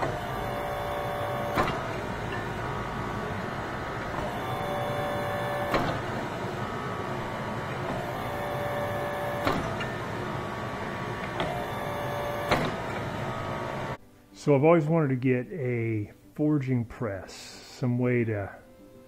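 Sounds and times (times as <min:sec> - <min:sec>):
hydraulic press motor whining: 0:00.0 - 0:14.0.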